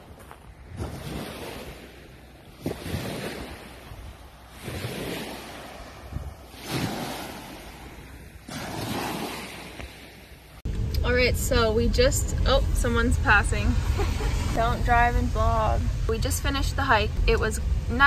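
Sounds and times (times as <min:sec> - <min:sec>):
waves washing on gravel beach: 0:00.0 - 0:10.2
wind buffeting microphone: 0:00.0 - 0:18.0.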